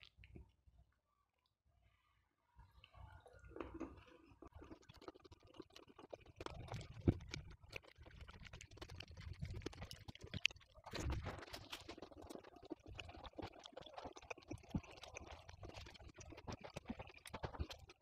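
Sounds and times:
close-up chewing: 0:03.2 - 0:18.0.

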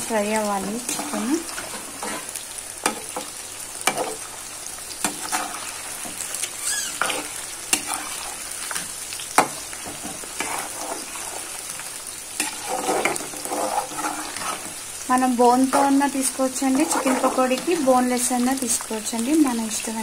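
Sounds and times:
deep-frying sizzle in hot oil: 0:00.0 - 0:20.0
metal spoon scraping pan: 0:00.4 - 0:04.2, 0:05.0 - 0:11.6, 0:12.4 - 0:14.9, 0:15.6 - 0:18.0.

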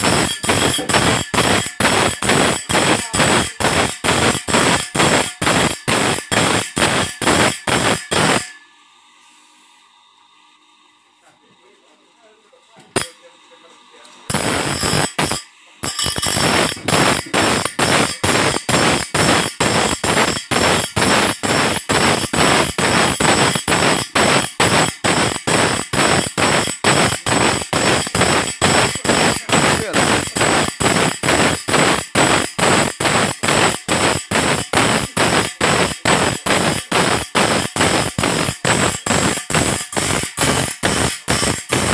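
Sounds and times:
grinder grinding saw blade: 0:00.0 - 0:08.7, 0:12.4 - 0:41.9.

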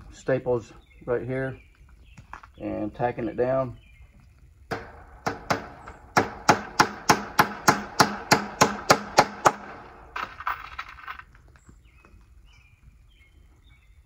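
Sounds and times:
hammer blows on staples: 0:04.7 - 0:09.8.

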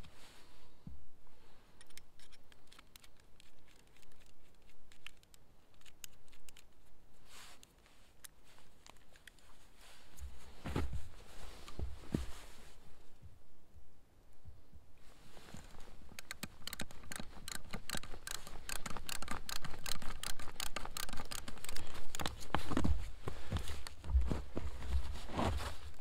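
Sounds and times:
small metal clicks: 0:01.8 - 0:06.9, 0:15.7 - 0:22.5.

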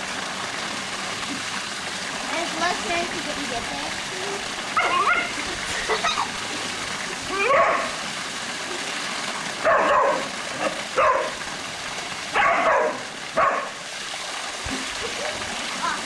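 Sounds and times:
falling water rushing: 0:00.0 - 0:16.0
dog barking: 0:04.8 - 0:05.4, 0:07.4 - 0:08.0, 0:09.6 - 0:11.4, 0:12.3 - 0:13.8.

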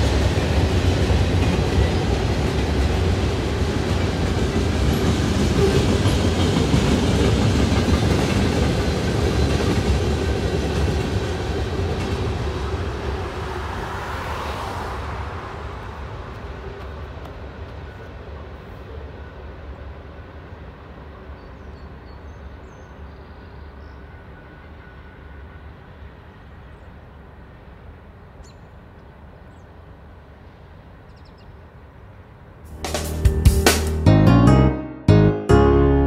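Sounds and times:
freight train rolling: 0:00.0 - 0:28.3
bird chirps: 0:31.1 - 0:31.6.

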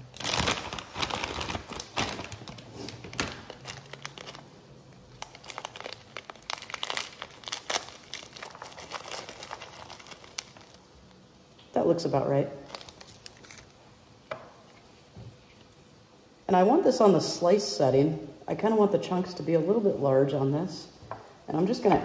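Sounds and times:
plastic bag crinkling: 0:00.0 - 0:11.2, 0:12.6 - 0:13.8.

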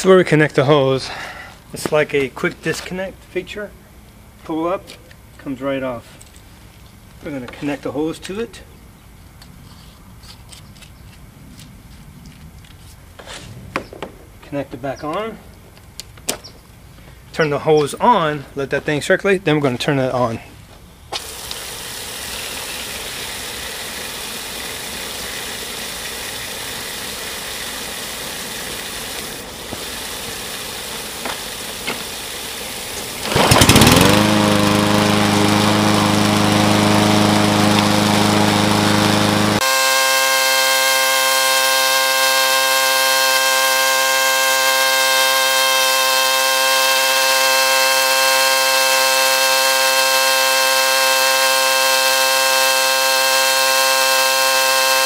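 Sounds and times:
lawn mower engine running: 0:21.1 - 0:55.0
water running from hose: 0:21.2 - 0:55.0.

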